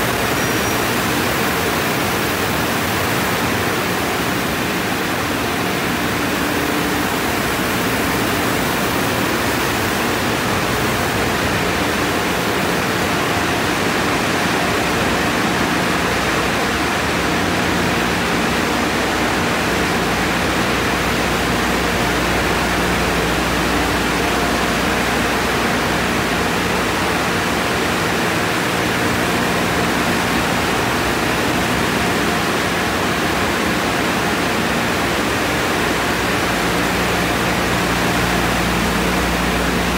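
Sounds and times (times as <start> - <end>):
faint machine hum: 0.0 - 39.9.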